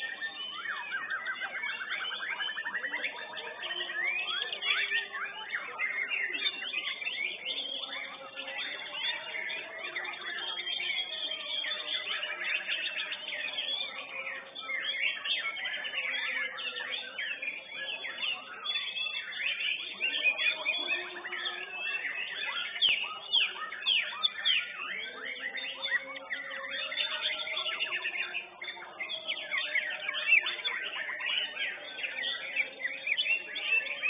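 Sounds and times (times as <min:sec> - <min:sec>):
bird song fast whistled notes: 0:00.0 - 0:34.0.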